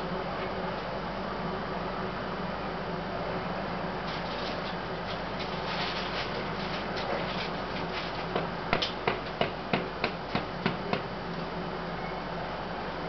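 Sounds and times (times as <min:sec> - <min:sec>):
sharp knocks: 0:08.3 - 0:11.1.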